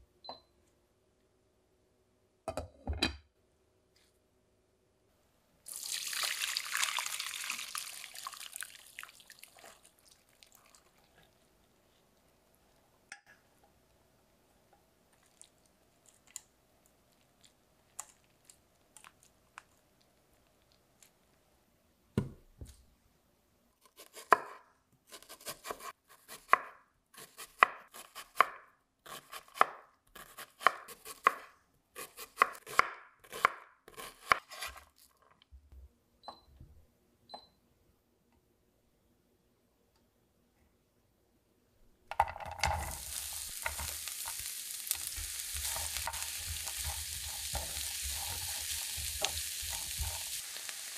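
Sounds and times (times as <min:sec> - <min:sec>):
knife chopping on cutting board: 0:22.2 - 0:22.4, 0:23.9 - 0:34.8.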